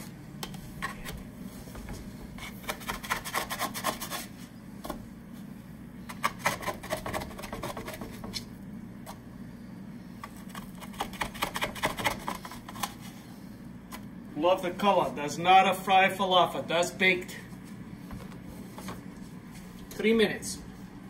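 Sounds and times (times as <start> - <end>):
low steady hum: 0.0 - 21.0
spatula scraping metal baking sheet: 2.4 - 4.4.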